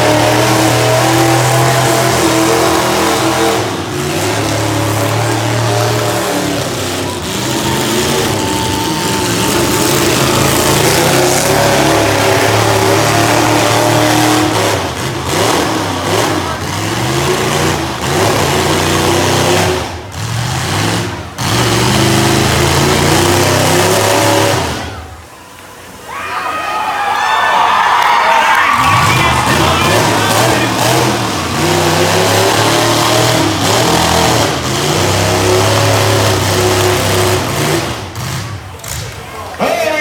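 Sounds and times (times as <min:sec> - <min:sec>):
car engines revving: 0:00.0 - 0:26.1, 0:27.5 - 0:40.0.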